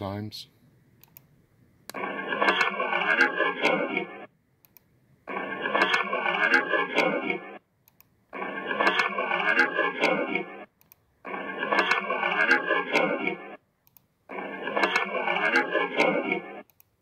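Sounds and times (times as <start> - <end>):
sharp clicks: 1.0 - 1.3, 4.6 - 14.1, 14.7 - 17.0.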